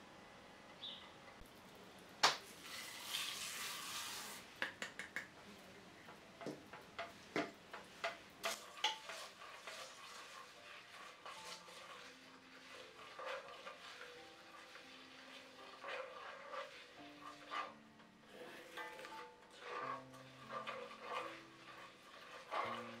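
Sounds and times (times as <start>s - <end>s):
seeds hissing in pan: 2.4s - 4.6s, 7.1s - 23.0s
wooden spoon stirring seeds: 2.6s - 23.0s
kitchenware knocking against pan: 6.4s - 9.2s.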